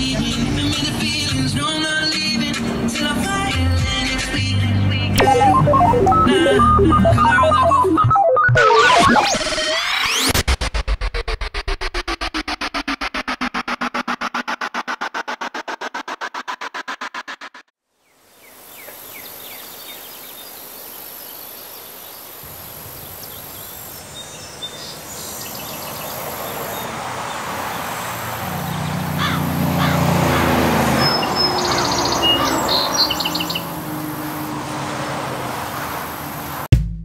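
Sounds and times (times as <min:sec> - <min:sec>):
birds chirping: 0:18.4 - 0:36.6.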